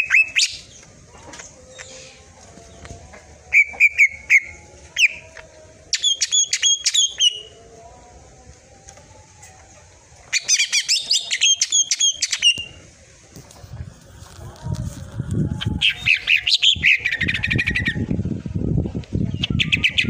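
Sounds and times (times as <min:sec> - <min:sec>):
bird singing whistled notes: 0:00.0 - 0:00.8, 0:05.9 - 0:07.6, 0:10.3 - 0:12.8.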